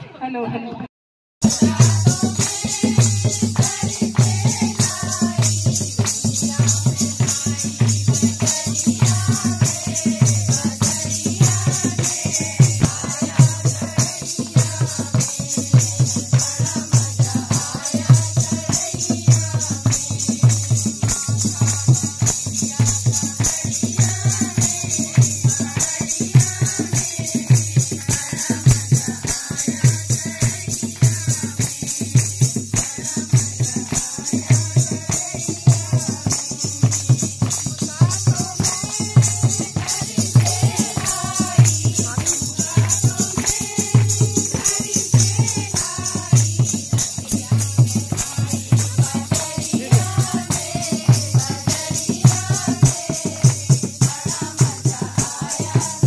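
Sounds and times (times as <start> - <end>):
drum beat: 1.4 - 56.0
women singing together: 1.4 - 56.0
hand clapping: 28.0 - 55.8.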